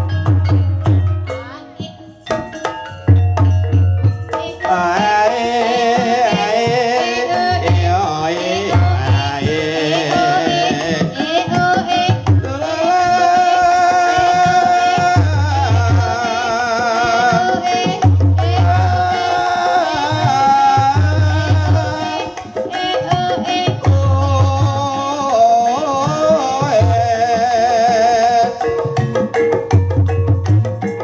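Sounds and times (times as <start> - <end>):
metal gamelan instruments: 0.0 - 31.0
person singing: 4.3 - 28.8.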